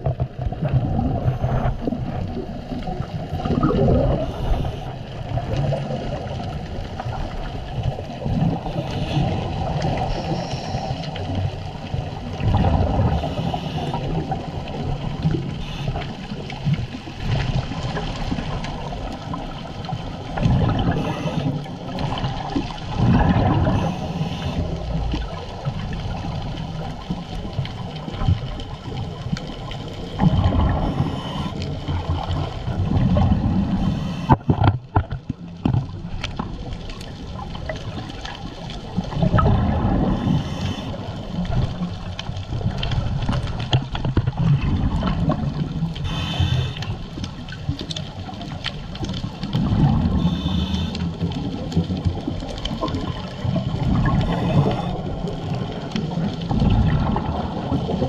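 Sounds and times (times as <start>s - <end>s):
regulator bubbles gurgling underwater: 0.0s - 58.0s
watery hiss: 3.8s - 5.0s, 8.4s - 11.1s, 13.0s - 14.4s, 15.5s - 16.4s, 20.6s - 22.6s, 23.4s - 25.1s, 30.5s - 32.5s, 33.6s - 34.6s, 39.8s - 41.2s, 46.0s - 47.2s, 49.7s - 51.6s, 53.8s - 55.6s.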